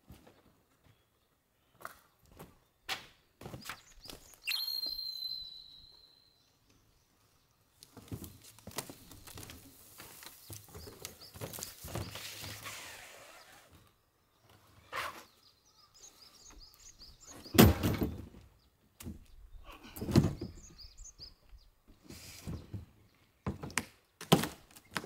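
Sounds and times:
sharp clear ringing tone: 4.5s - 6.5s.

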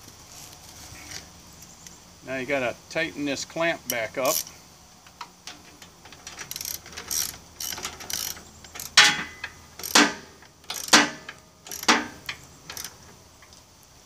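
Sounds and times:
ratchet wrench clicking: 3.9s - 4.5s, 5.5s - 13.0s.

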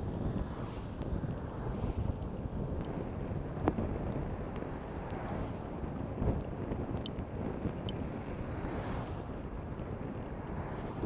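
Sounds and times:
wind buffeting microphone: 0.0s - 11.0s
faint ticks: 6.3s - 8.0s.

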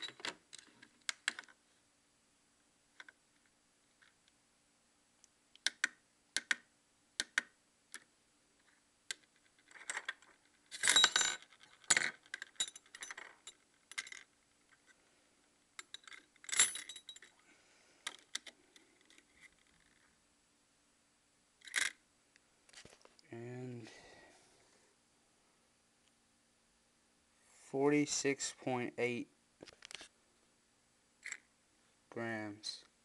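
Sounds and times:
metal rings clinking on a scale: 10.7s - 14.2s, 15.8s - 17.3s.

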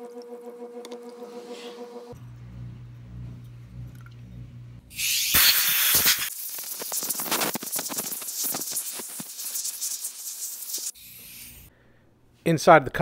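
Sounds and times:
air blow gun hissing: 4.9s - 11.7s.

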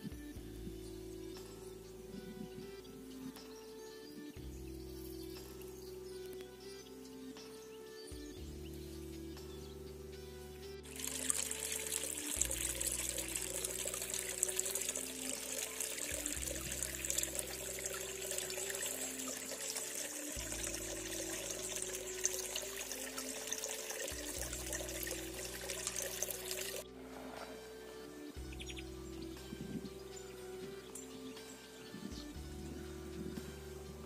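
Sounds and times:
music with long held notes: 0.0s - 34.0s
water trickling: 10.8s - 33.9s.

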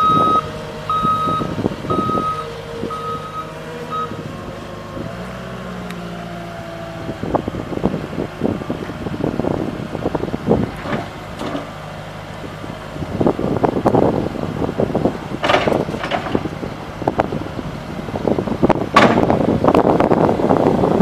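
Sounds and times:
diesel engine running: 0.0s - 21.0s
gusty noise: 12.9s - 21.0s.

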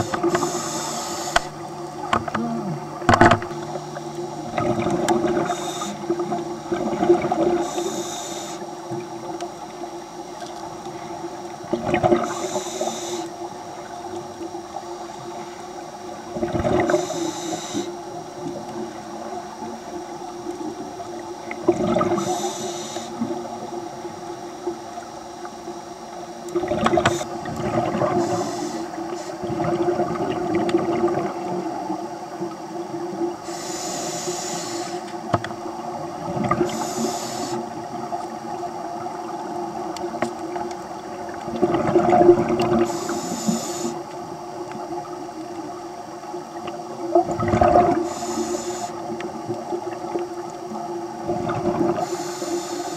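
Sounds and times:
diver breathing through regulator: 0.0s - 8.8s, 12.1s - 13.4s, 16.6s - 18.1s, 21.8s - 23.6s, 26.8s - 29.7s, 33.4s - 35.2s, 36.4s - 37.8s, 42.7s - 44.1s, 47.8s - 49.1s, 51.8s - 52.9s
steady hum: 0.0s - 52.9s.

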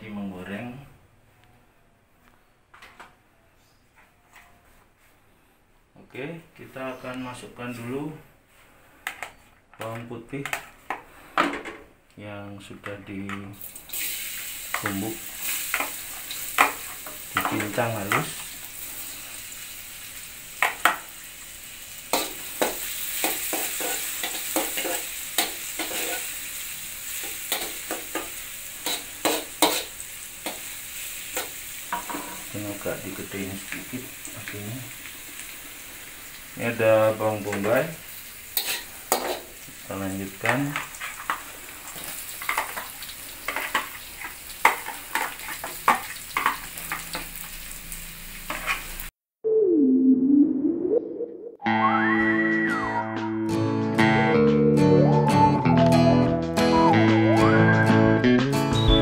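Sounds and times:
garlic sizzling in oil: 13.6s - 49.1s
metal spatula scraping wok: 22.2s - 26.4s, 27.2s - 30.7s, 38.6s - 39.6s, 48.4s - 49.0s.

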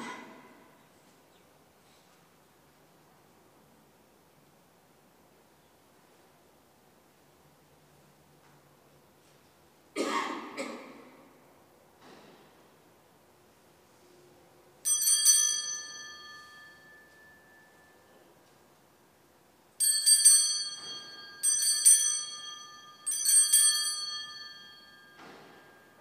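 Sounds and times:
altar bells jangling: 14.8s - 18.2s, 19.8s - 26.0s.

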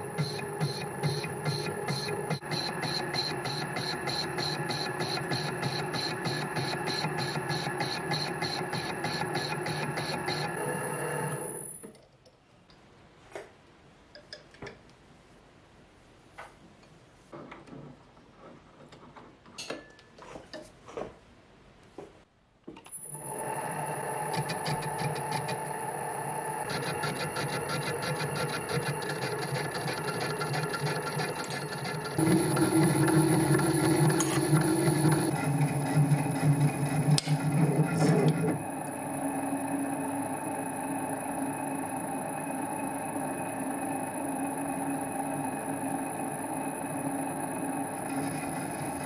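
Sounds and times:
metal lathe humming and whining: 0.0s - 11.8s, 23.1s - 49.0s.

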